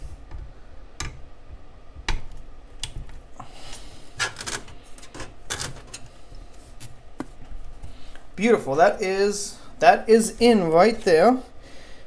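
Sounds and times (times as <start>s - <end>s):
cables rubbing and rustling: 2.8s - 8.0s.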